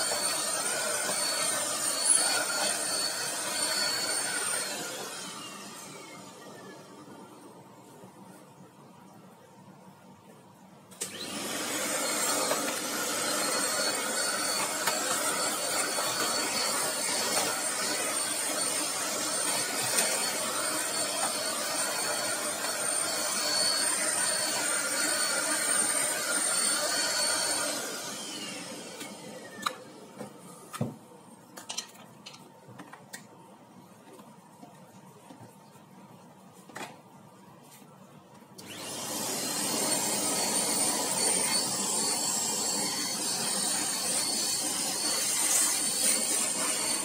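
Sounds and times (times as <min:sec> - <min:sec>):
handheld vacuum whining: 0:00.0 - 0:07.2, 0:10.9 - 0:30.4, 0:38.6 - 0:47.0.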